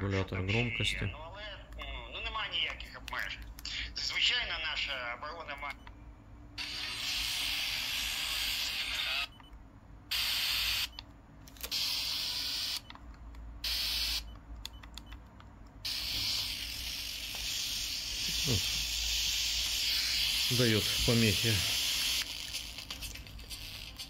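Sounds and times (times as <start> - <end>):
radio static hiss: 15.9 - 22.3.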